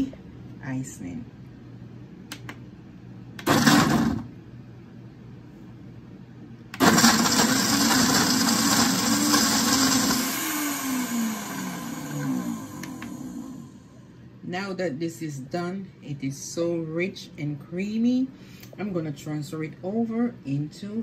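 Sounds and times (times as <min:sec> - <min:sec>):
blender grinding nuts: 0:03.4 - 0:04.3, 0:06.8 - 0:13.9.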